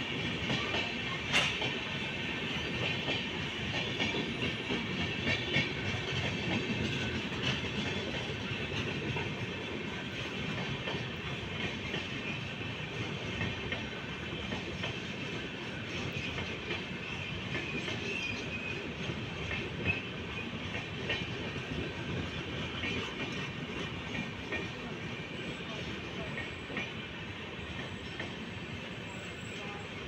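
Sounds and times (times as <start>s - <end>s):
train wheels on rails: 0.0s - 30.0s
wheels clicking over rail joints: 0.2s - 1.9s, 2.7s - 24.9s.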